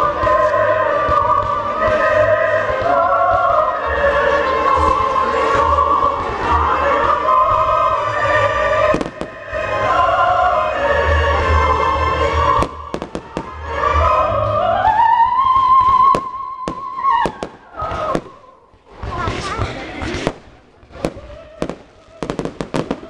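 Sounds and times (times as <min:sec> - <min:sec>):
operatic singing with music: 0:00.0 - 0:19.0
firework bangs: 0:08.8 - 0:09.7, 0:12.6 - 0:13.6, 0:15.2 - 0:23.0.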